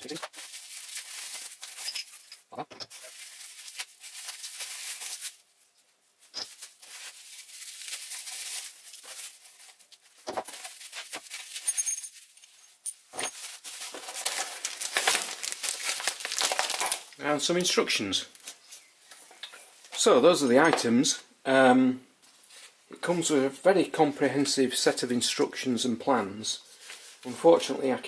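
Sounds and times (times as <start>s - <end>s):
plastic packaging crinkling: 0.0s - 2.3s, 2.9s - 5.6s, 6.2s - 12.6s, 13.3s - 17.7s.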